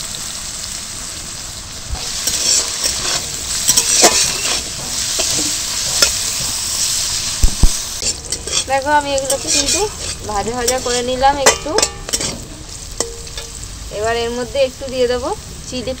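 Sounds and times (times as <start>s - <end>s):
vegetables sizzling in hot oil: 0.0s - 16.0s
metal spatula scraping a pan: 2.0s - 13.6s.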